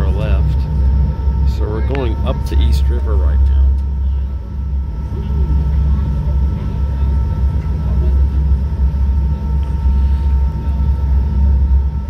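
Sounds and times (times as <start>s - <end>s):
faint high whine: 0.0s - 12.0s
ferry engines low rumble: 0.0s - 12.0s.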